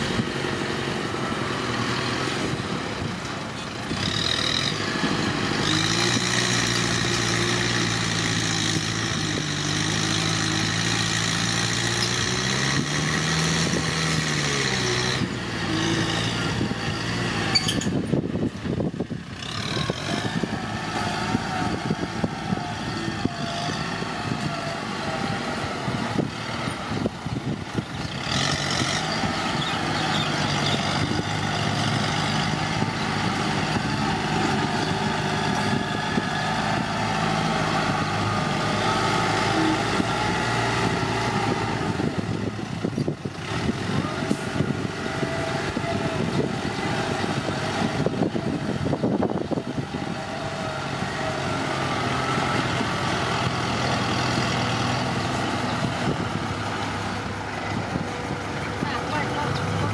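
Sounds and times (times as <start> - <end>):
tractor diesel engine under load: 0.0 - 59.9.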